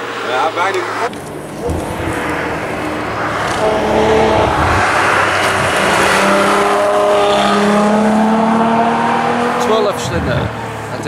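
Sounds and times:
car engine accelerating: 0:00.0 - 0:11.0.

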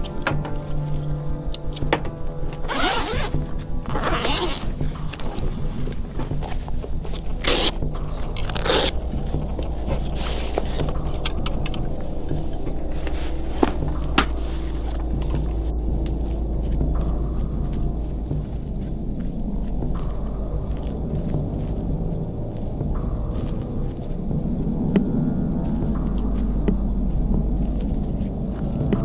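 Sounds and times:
background music: 0:00.0 - 0:29.0
zippers pulled open: 0:02.7 - 0:04.8, 0:07.3 - 0:07.8, 0:08.4 - 0:09.0.

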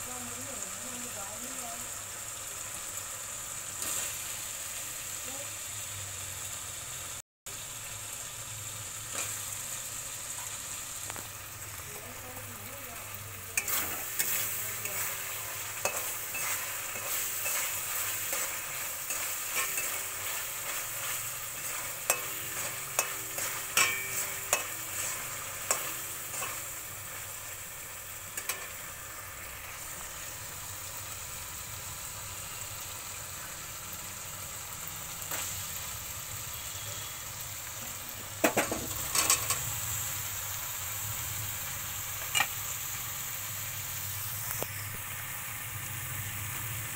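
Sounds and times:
food sizzling in a pan: 0:00.0 - 0:46.9
spatula scraping and clinking on pan: 0:13.6 - 0:27.3, 0:28.3 - 0:28.8, 0:38.5 - 0:39.7.

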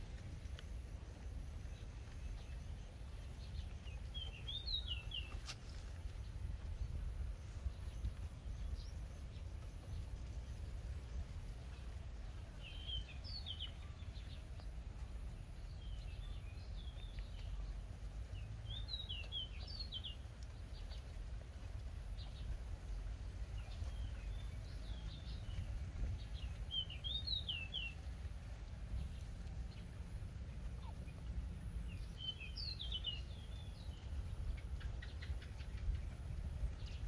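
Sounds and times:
small birds chirping: 0:00.0 - 0:37.0
steady low rumble: 0:00.0 - 0:37.0.

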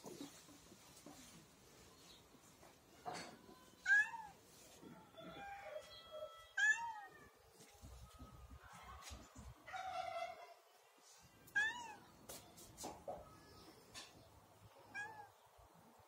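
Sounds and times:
cat meowing: 0:11.5 - 0:12.0, 0:14.9 - 0:15.4.

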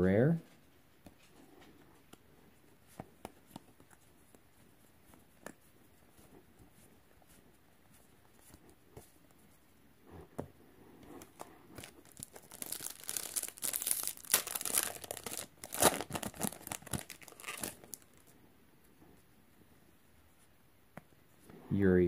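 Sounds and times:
foil wrapper crinkling: 0:11.8 - 0:18.2.

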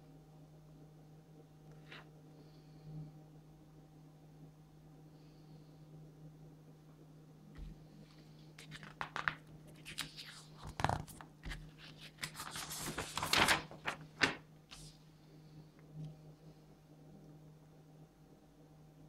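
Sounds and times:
paper rustling and crinkling: 0:07.6 - 0:15.0.

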